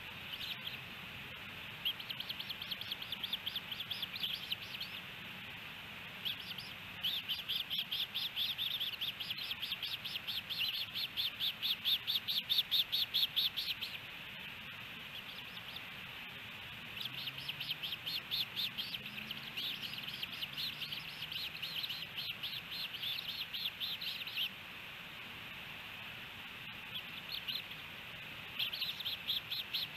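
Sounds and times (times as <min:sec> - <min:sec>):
ospreys chirping rapidly: 0:00.0 - 0:05.2, 0:06.0 - 0:14.2, 0:15.0 - 0:24.6, 0:26.8 - 0:29.9.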